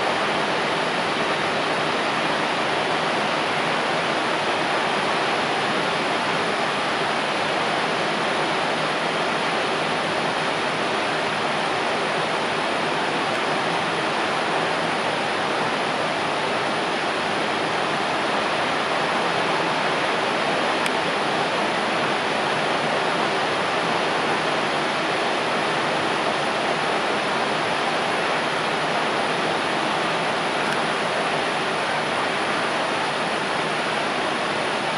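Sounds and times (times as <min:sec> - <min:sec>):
waterfall rushing: 0:00.0 - 0:34.9.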